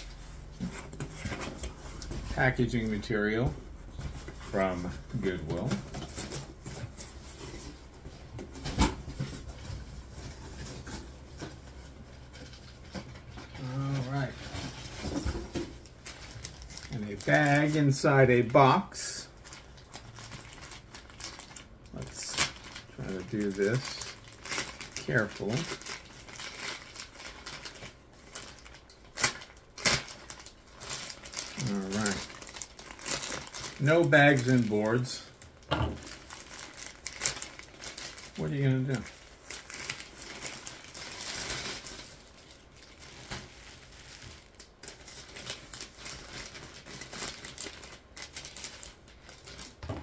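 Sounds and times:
packing material rustling: 0.0 - 50.0
plastic bag snapping: 28.6 - 33.9.

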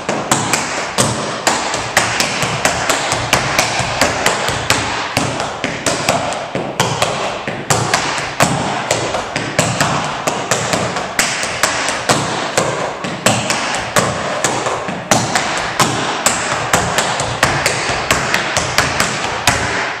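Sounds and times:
tap shoes on wooden floor: 0.0 - 20.0.

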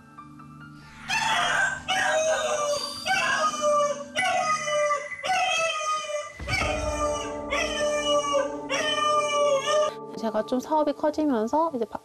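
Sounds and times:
dog howling: 1.1 - 10.0.

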